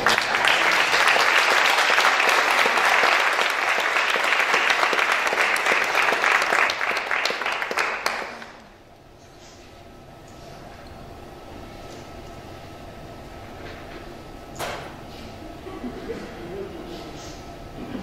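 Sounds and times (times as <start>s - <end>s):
congregation applauding: 0.0s - 8.8s.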